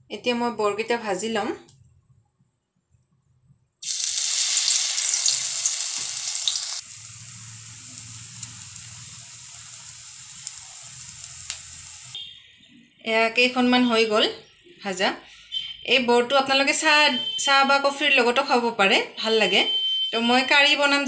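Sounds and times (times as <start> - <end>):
batter sizzling in hot oil: 3.8 - 12.2.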